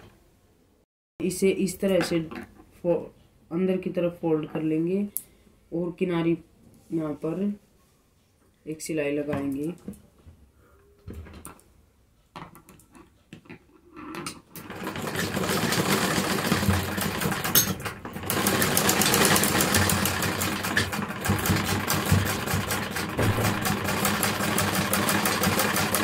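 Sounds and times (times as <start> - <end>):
sewing machine stitching: 14.2 - 26.0.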